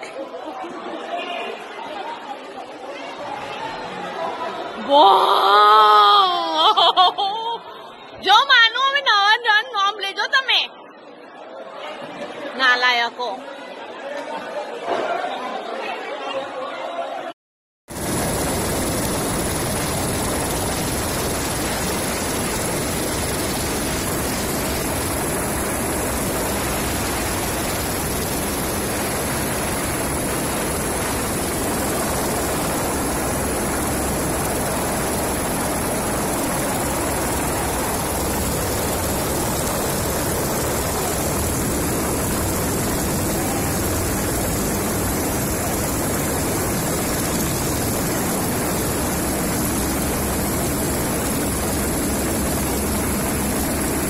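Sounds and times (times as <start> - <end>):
aircraft engine and rotor noise: 17.9 - 54.0.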